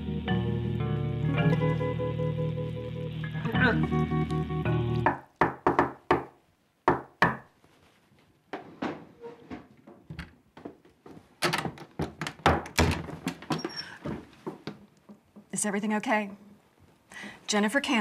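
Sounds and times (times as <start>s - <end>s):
knocks on wooden door: 5.1s - 6.3s, 6.9s - 7.4s, 11.6s - 13.4s.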